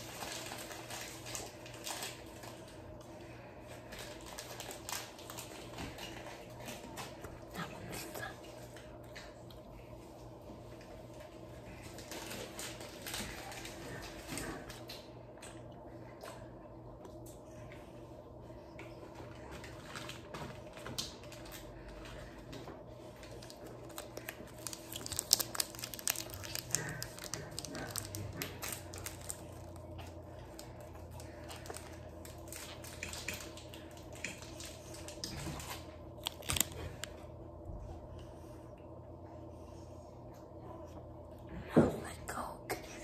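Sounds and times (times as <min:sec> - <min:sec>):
candy wrapper crinkling: 0:00.0 - 0:02.9, 0:03.9 - 0:06.4, 0:23.2 - 0:37.2
steady low hum: 0:00.0 - 0:43.0.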